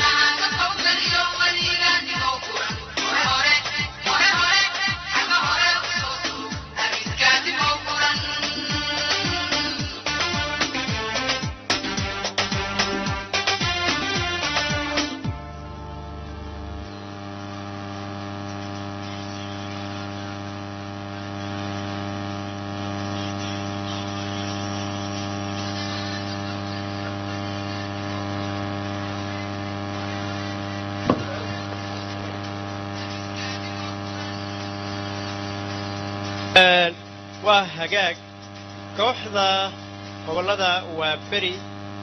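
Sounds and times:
electrical mains hum: 0:00.0 - 0:42.0
sharp pop: 0:31.0 - 0:31.5.

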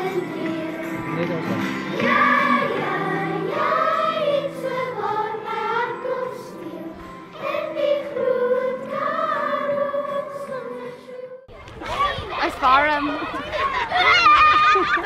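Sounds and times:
children's choir singing: 0:00.0 - 0:11.5.

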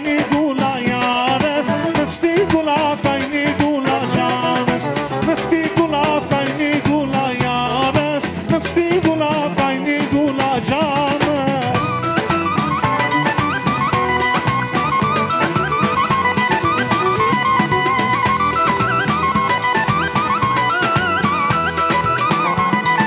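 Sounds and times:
drum beat: 0:00.0 - 0:23.0
live band music: 0:00.0 - 0:23.0
wavering melody line: 0:11.7 - 0:23.0.

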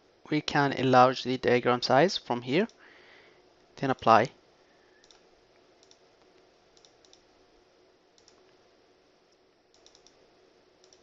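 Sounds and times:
low steady hiss: 0:00.0 - 0:11.0
computer mouse clicks: 0:05.0 - 0:05.2, 0:05.8 - 0:07.3, 0:08.1 - 0:08.6, 0:09.7 - 0:10.2, 0:10.8 - 0:11.0.

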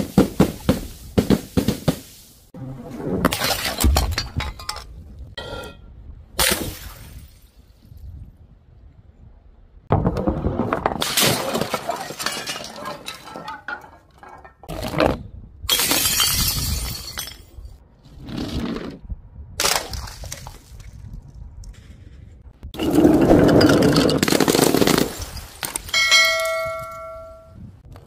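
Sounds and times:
glass bottles smashing on tiles: 0:11.0 - 0:14.7, 0:15.7 - 0:17.6.

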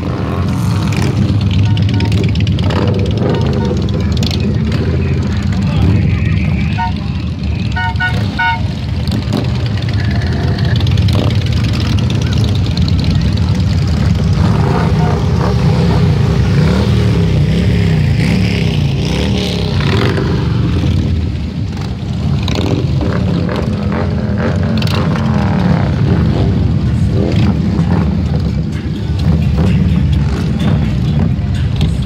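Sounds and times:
motorcycle engines rumbling: 0:00.0 - 0:32.0
engine revving: 0:13.8 - 0:28.5.

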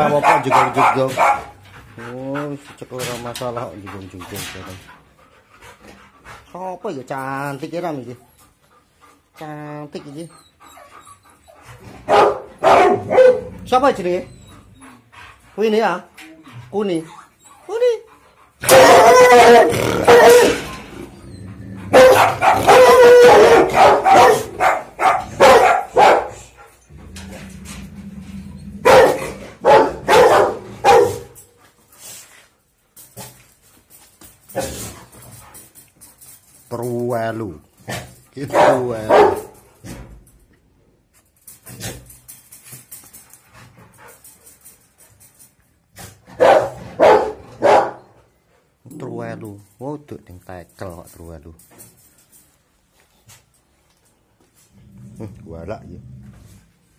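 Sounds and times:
dog barking loudly: 0:00.0 - 0:01.6, 0:12.0 - 0:13.6, 0:18.6 - 0:20.7, 0:21.9 - 0:26.4, 0:28.8 - 0:31.4, 0:38.5 - 0:39.6, 0:46.4 - 0:48.0.

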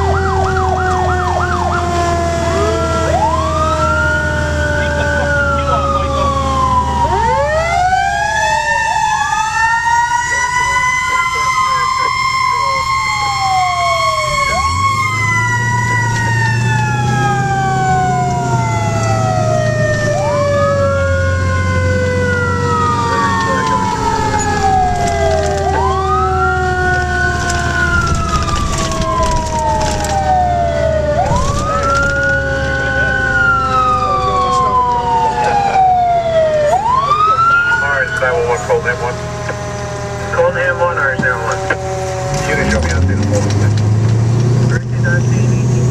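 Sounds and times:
siren wailing: 0:00.0 - 0:45.9
siren winding down: 0:00.0 - 0:45.9
truck engine rumble: 0:00.0 - 0:45.9.

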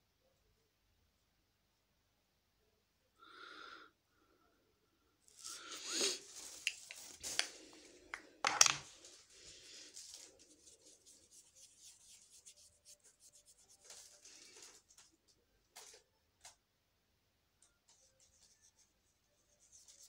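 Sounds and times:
brush scratching near microphone: 0:09.9 - 0:14.5.

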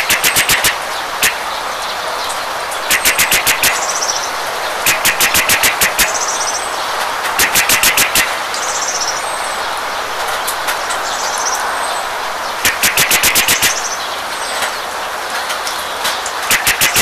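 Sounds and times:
rattling burst of rapid clicks: 0:00.0 - 0:01.4, 0:02.8 - 0:04.0, 0:04.8 - 0:06.2, 0:07.2 - 0:08.4, 0:12.6 - 0:13.8, 0:16.2 - 0:17.0
rain falling: 0:00.0 - 0:17.0.

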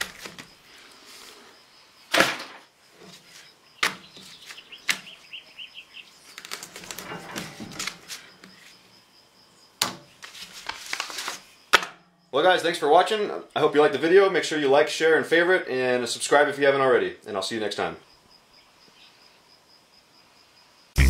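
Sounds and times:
paper rustling: 0:00.0 - 0:00.5, 0:06.2 - 0:08.8, 0:10.2 - 0:11.5
small birds chirping: 0:02.9 - 0:06.8, 0:18.0 - 0:19.5.

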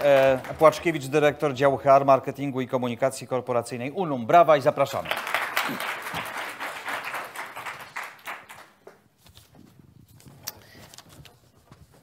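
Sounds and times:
audience applause: 0:00.0 - 0:01.2, 0:05.0 - 0:08.9.

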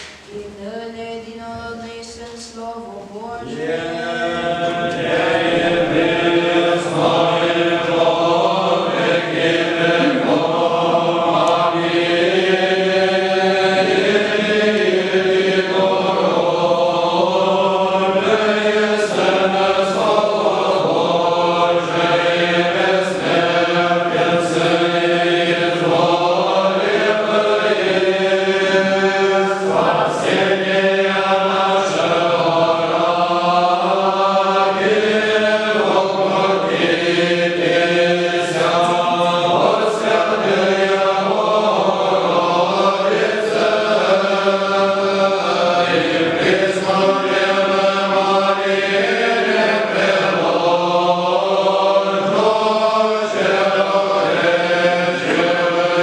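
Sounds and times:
men's choir chanting: 0:03.4 - 0:56.0.

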